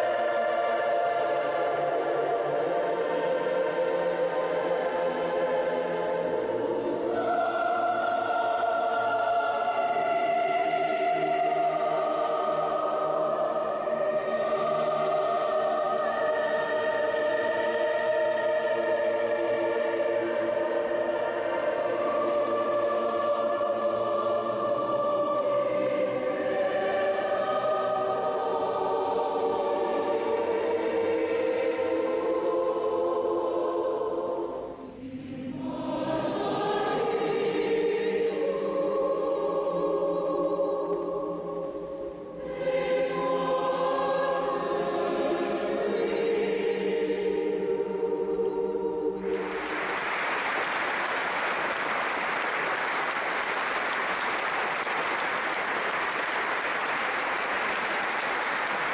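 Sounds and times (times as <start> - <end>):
mixed choir singing: 0.0 - 58.9
applause: 49.2 - 58.9.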